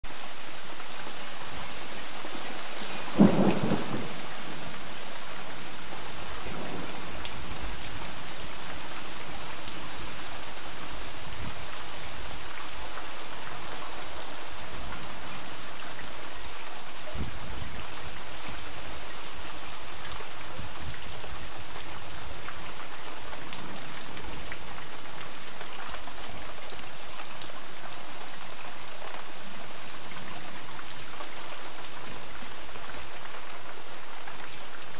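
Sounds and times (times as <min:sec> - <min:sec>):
rain splashing on pavement: 0:00.0 - 0:34.9
thunder clap: 0:03.2 - 0:04.3.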